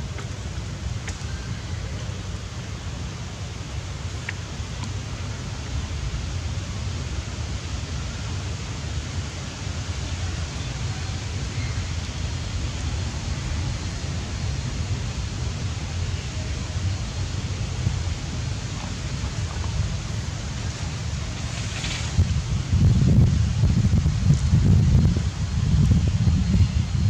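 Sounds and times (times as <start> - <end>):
wind buffeting microphone: 9.3 - 27.0.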